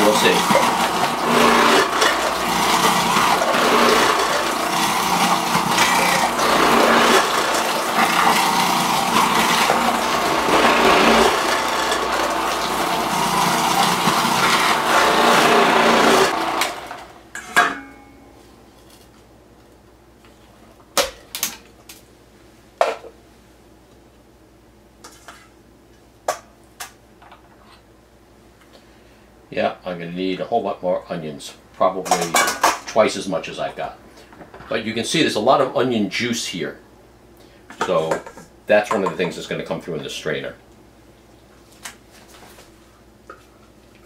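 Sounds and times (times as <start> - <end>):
food processor grinding: 0.0 - 17.2.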